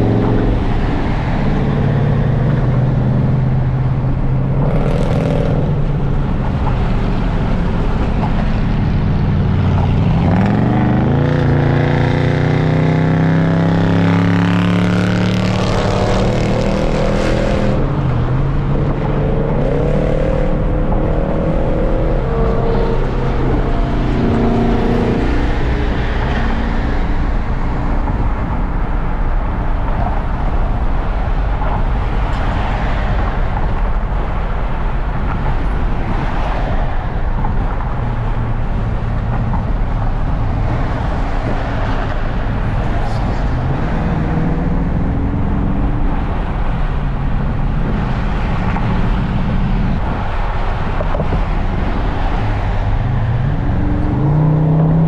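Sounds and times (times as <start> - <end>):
car engine accelerating hard: 0.0 - 29.8, 38.2 - 55.0
tyre and wind noise: 14.6 - 55.0.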